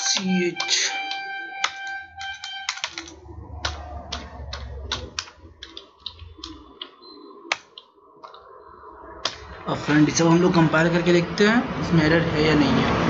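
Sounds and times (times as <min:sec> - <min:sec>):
computer keyboard keys clicking: 0:00.0 - 0:08.5.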